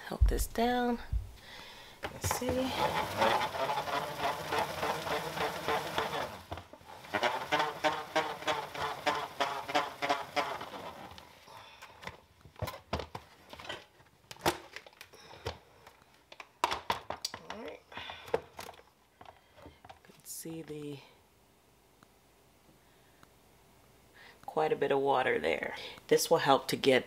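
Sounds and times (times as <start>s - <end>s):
salad spinner whirring: 2.2s - 11.3s.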